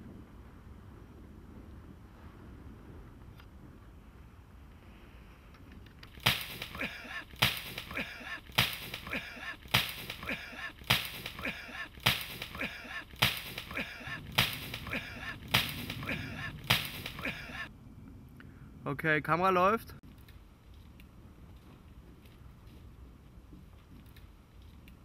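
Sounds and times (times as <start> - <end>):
sharp cracks: 5.9 - 17.7.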